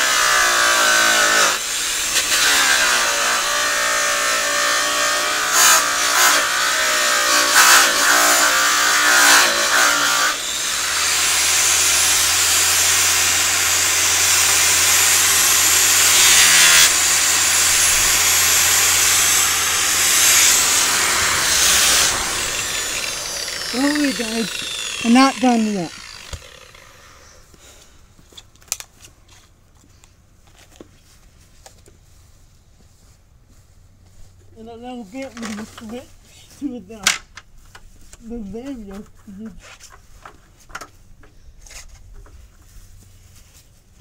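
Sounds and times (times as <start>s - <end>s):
electric polisher on metal: 0.0s - 27.3s.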